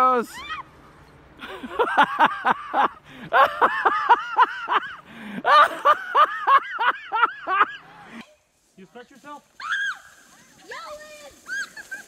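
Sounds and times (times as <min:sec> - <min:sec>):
person laughing hard: 0:01.4 - 0:07.9.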